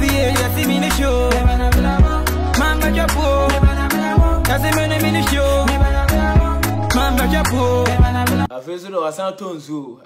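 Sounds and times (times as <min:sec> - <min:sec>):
music with steady beat: 0:00.0 - 0:08.5.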